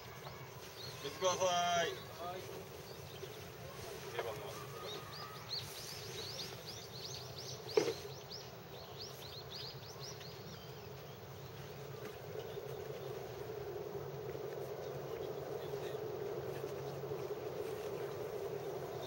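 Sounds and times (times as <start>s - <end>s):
outdoor background noise: 0.0s - 19.0s
bird chirping: 0.1s - 13.7s.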